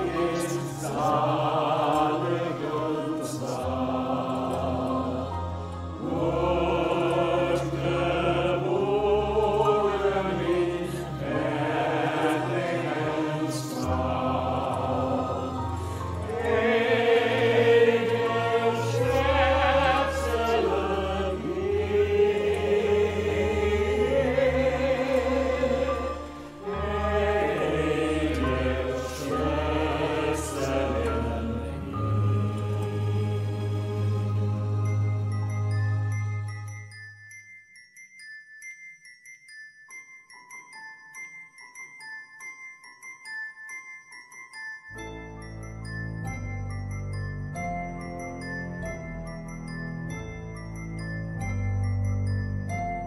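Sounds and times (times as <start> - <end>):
church choir singing: 0.0 - 36.1.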